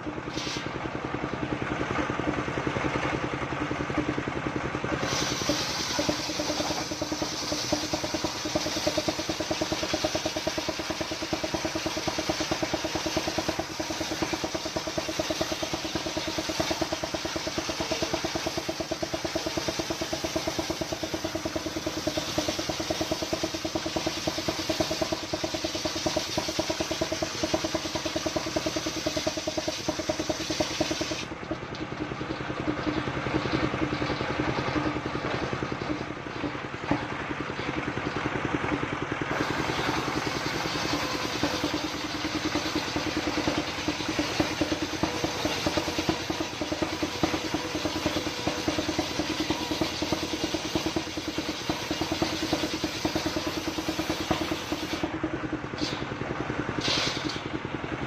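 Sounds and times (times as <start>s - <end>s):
diesel engine chugging: 0.0s - 58.0s
circular saw cutting wood: 5.0s - 31.3s, 39.3s - 55.1s.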